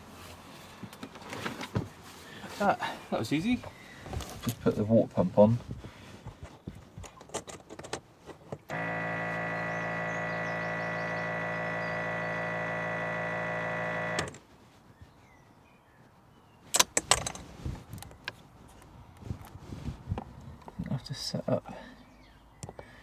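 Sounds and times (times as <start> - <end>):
water pump humming: 8.7 - 14.3.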